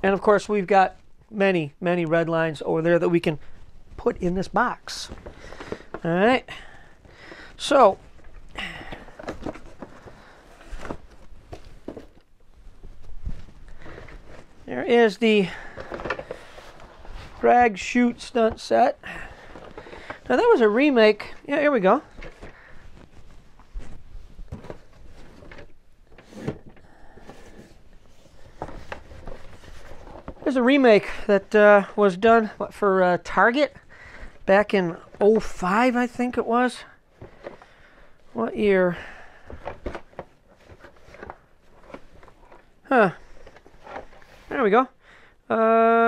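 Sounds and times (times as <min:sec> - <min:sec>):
cardboard boxes knocking and rustling: 0:08.6 - 0:12.2, 0:23.6 - 0:30.4.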